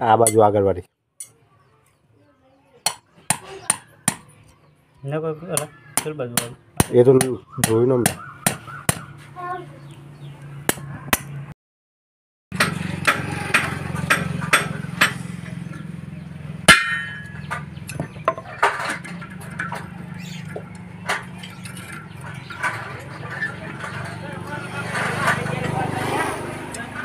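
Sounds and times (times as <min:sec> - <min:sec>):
hammer striking steel: 0:12.6 - 0:15.3, 0:16.7 - 0:19.9.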